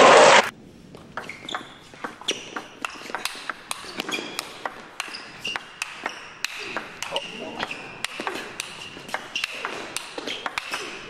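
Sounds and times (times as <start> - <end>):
shoes squeaking on floor: 0.8 - 11.0.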